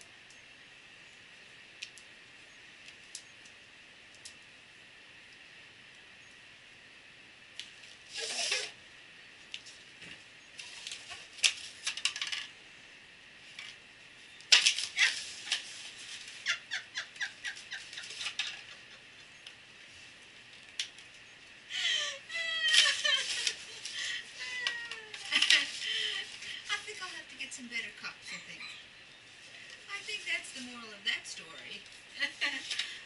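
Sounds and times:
paper cups crinkling and crunching: 22.6s - 27.5s.

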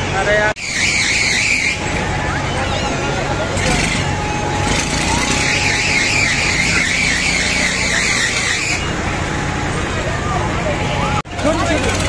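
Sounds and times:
riders screaming: 4.0s - 9.0s.

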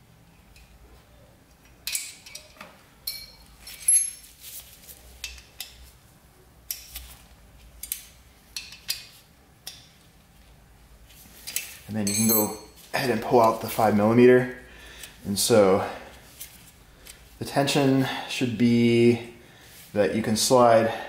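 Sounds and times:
allen keys clicking on metal: 11.5s - 12.8s.

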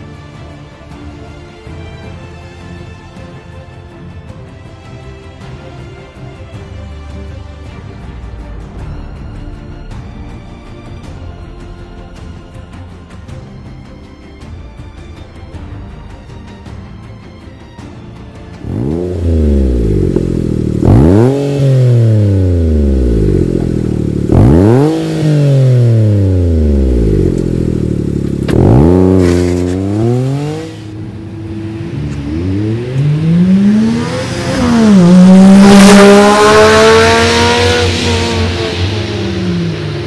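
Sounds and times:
small car engine revving: 18.6s - 40.0s.

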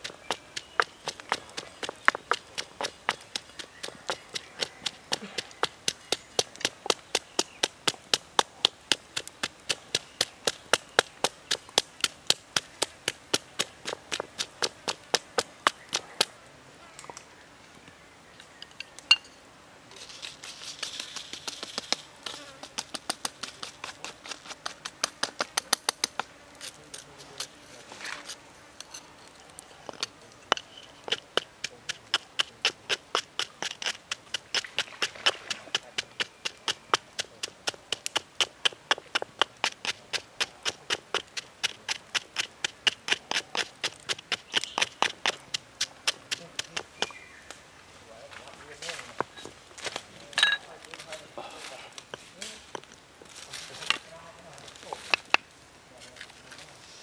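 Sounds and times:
pestle pounding in stone mortar: 0.0s - 16.0s, 21.3s - 26.3s, 29.9s - 47.2s.

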